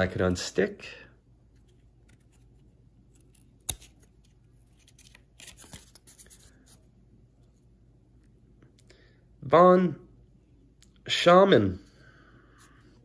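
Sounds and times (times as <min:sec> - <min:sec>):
trading cards rustling: 0:01.5 - 0:06.8.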